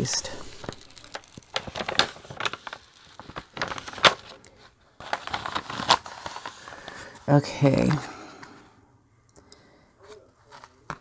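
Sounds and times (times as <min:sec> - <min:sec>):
paper crinkling by hand: 0:00.0 - 0:08.0.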